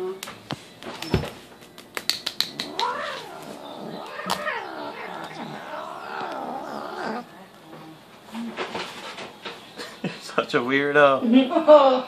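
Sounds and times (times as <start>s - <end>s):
cat growling: 2.5s - 8.5s.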